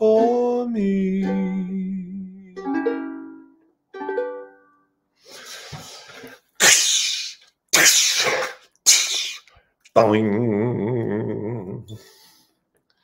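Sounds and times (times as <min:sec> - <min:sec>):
ukulele chords strummed: 0:00.0 - 0:04.9
rushing hiss-like noise bursts: 0:06.6 - 0:09.4.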